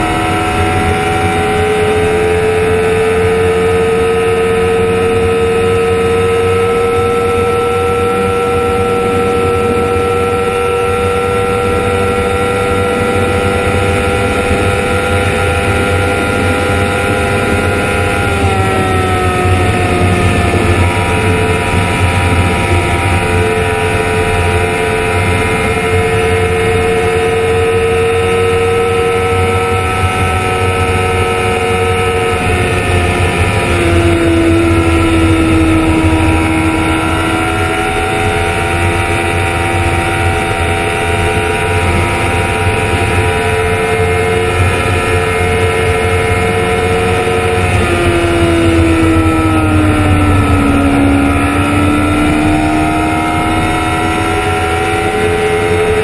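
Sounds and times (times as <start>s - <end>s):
motorcycle engine at high revs: 0.0s - 56.0s
wind rush on microphone: 0.0s - 56.0s.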